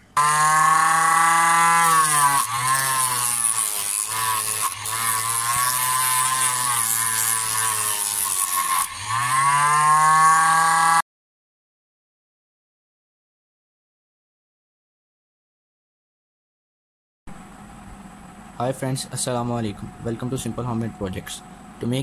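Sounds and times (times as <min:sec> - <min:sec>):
grinding hiss of metal sanding: 0:00.4 - 0:09.1.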